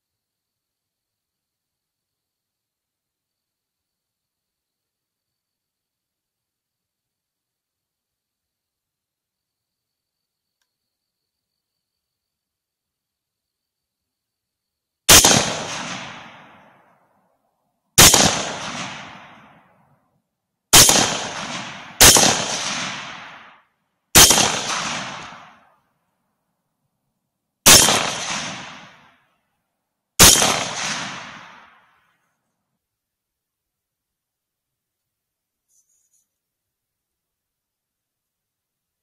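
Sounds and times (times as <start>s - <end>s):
rifle shots with echo: 15.1s - 16.9s, 18.0s - 19.7s, 20.7s - 25.7s, 27.6s - 29.2s, 30.2s - 32.0s.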